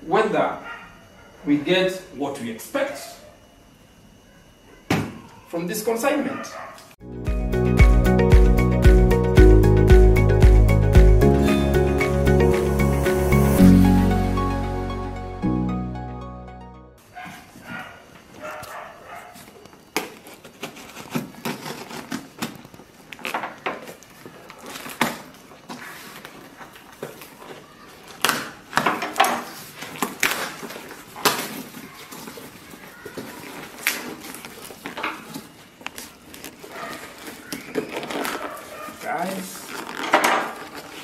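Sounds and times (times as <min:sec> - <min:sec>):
cardboard flaps scraping: 0:18.4 - 0:41.0
packing tape ripping: 0:19.5 - 0:41.0.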